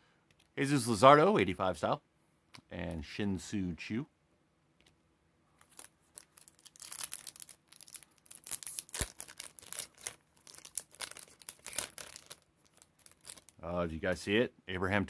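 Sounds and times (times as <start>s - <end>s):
foil wrapper tearing and crinkling: 5.6s - 13.6s.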